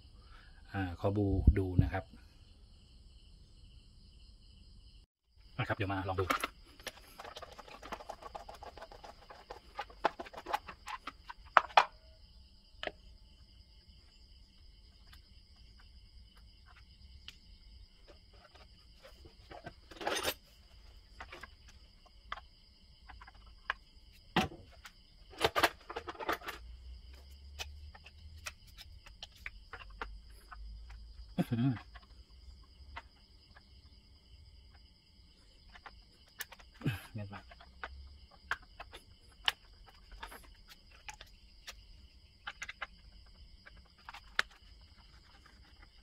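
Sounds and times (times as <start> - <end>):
plastic clicks and knocks: 6.2 - 12.0, 37.4 - 46.0.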